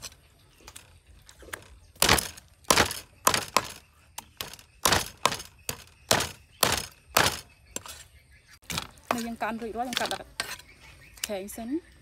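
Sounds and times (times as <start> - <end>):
cleaver chopping on wooden block: 2.0 - 7.4.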